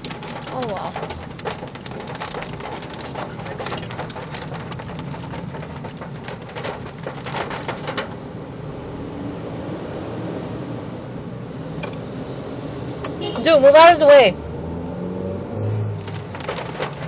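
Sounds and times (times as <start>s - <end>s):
hail drumming on car roof: 0.0s - 8.5s, 15.9s - 17.0s
car hum: 0.0s - 17.0s.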